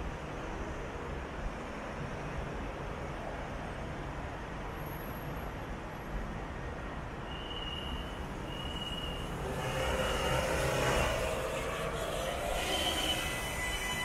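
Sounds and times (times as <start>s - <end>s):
train rumble: 7.2s - 14.0s
steady high whine: 7.8s - 14.0s.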